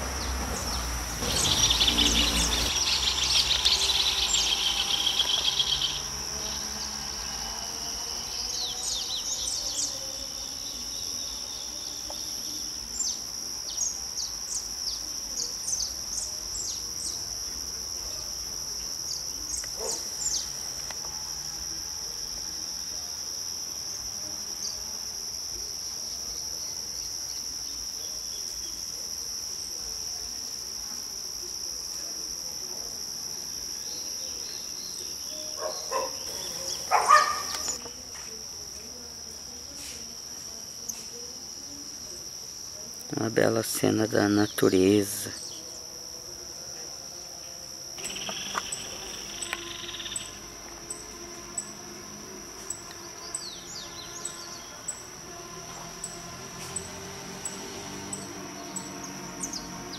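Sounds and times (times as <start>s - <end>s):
high-pitched insect drone: 0.2s - 59.9s.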